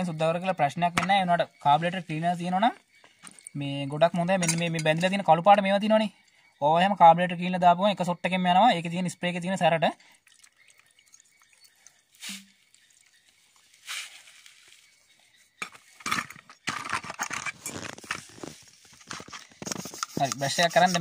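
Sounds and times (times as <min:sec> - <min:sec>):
metal parts clinking in basin: 0:04.4 - 0:05.0, 0:15.6 - 0:18.4.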